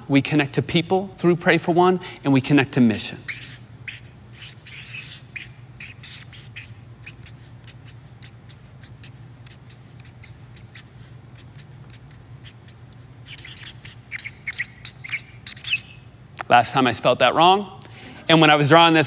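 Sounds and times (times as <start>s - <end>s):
low steady hum: 0.0s - 19.0s
marker scratching on paper: 2.9s - 16.1s.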